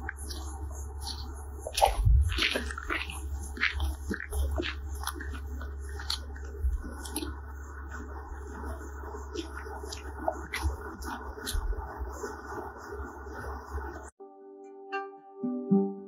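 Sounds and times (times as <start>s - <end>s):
crunching on gravel: 0.0s - 8.7s
steady low rumble: 0.0s - 14.1s.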